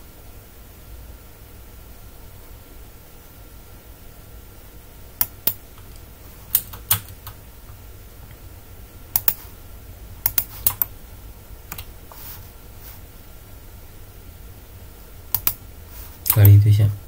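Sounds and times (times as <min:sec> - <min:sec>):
keyboard key clicks: 0:09.2 - 0:09.4, 0:10.3 - 0:10.9, 0:15.3 - 0:15.6.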